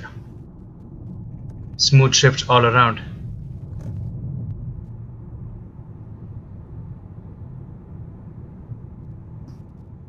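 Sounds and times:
car cabin engine and road rumble: 0:00.0 - 0:10.0.

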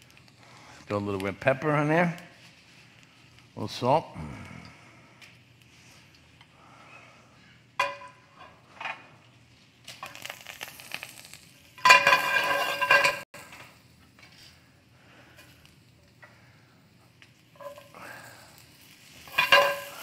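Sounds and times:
food frying in oil: 0:07.8 - 0:14.7, 0:15.4 - 0:20.0
scraping against pan: 0:11.8 - 0:13.2
metal clinks against pan: 0:19.3 - 0:20.0.

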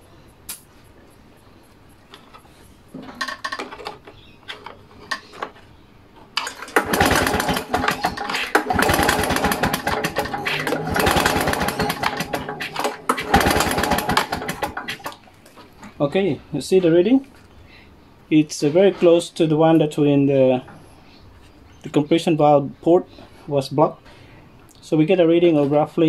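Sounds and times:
lawnmower engine cranking without firing: 0:06.4 - 0:15.2.

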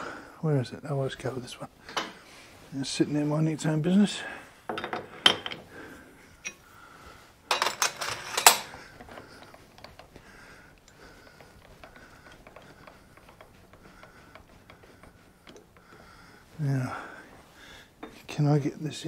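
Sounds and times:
metal tool clinking and clattering: 0:04.7 - 0:05.7, 0:07.5 - 0:10.2.

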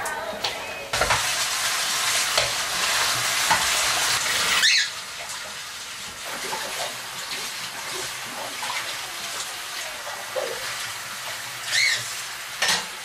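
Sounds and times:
tap squeak: 0:11.7 - 0:12.1.

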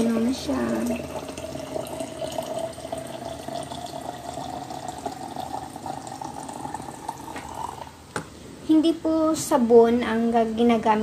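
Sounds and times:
hot water pouring into glass jar: 0:00.0 - 0:08.0.

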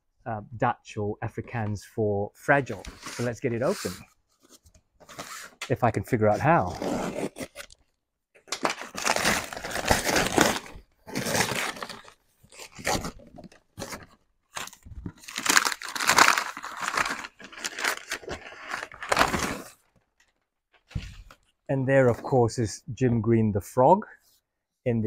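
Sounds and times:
paper bag tearing and crumpling: 0:08.5 - 0:13.2, 0:14.6 - 0:19.8.

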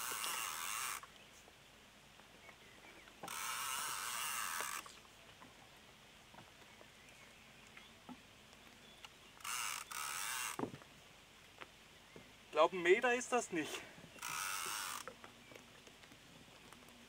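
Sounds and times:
fishing reel drag hiss: 0:00.0 - 0:01.1, 0:03.2 - 0:04.9, 0:09.4 - 0:10.6, 0:13.6 - 0:15.1.

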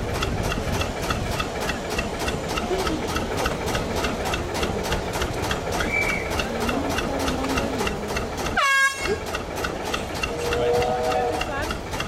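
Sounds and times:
diesel locomotive engine idling: 0:00.0 - 0:12.0
locomotive horn blast: 0:08.6 - 0:09.2, 0:10.3 - 0:11.6.

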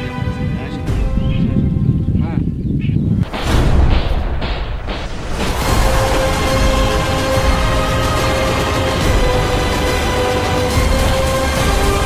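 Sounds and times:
background music: 0:00.0 - 0:02.6, 0:03.2 - 0:12.0
gunfire booms: 0:03.2 - 0:06.1.

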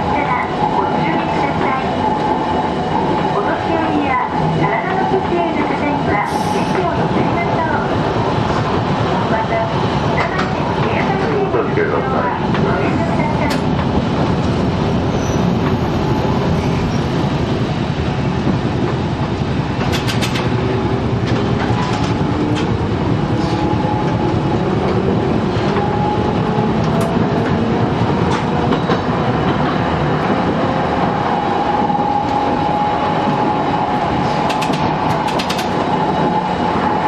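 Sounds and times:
wheels rumbling on rail: 0:00.0 - 0:37.0
sharp clicks: 0:34.5 - 0:35.8.

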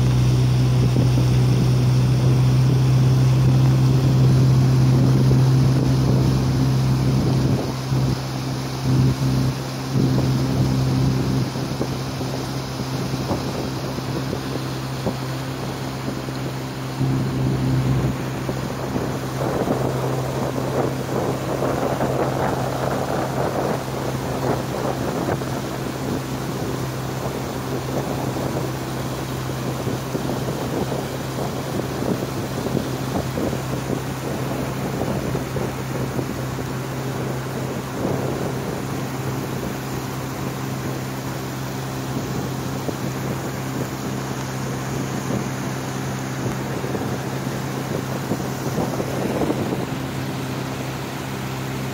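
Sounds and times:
boat motor humming: 0:00.0 - 0:51.9
water along hull: 0:00.0 - 0:51.9
wind on microphone: 0:00.0 - 0:51.9.

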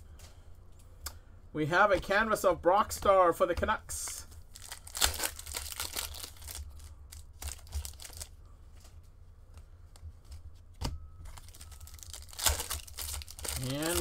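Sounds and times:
steady low hum: 0:00.0 - 0:14.0
cards rustling: 0:04.0 - 0:08.9, 0:11.3 - 0:14.0
foil wrapper crinkling and tearing: 0:04.5 - 0:08.4, 0:11.3 - 0:14.0.

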